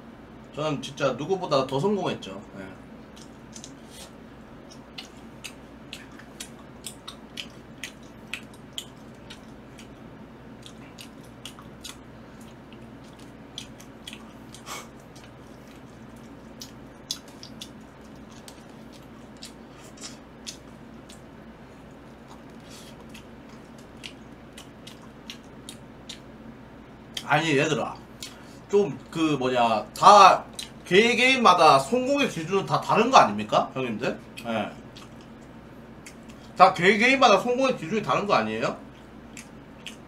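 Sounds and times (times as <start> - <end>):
steady low hum: 0.0 - 40.0
chewing and mouth clicks: 3.0 - 26.3, 30.5 - 30.8, 34.3 - 36.6, 39.3 - 40.0.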